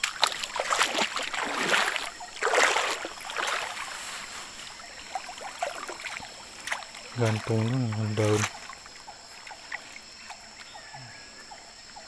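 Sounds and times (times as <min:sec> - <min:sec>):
fish splashing in net: 0:00.0 - 0:09.8
water splashing and sloshing: 0:00.0 - 0:10.8
water trickling and dripping: 0:00.0 - 0:10.8.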